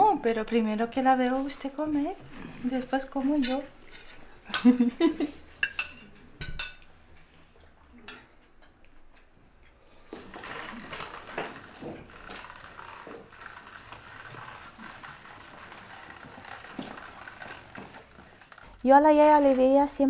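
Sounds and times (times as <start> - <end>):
cutlery clinking on plate: 5.6 - 6.9.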